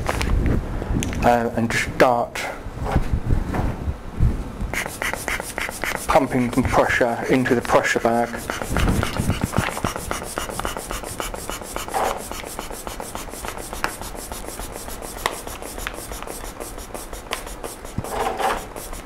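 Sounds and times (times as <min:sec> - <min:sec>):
rubber bulb squeezed pumping air: 0:04.7 - 0:19.0.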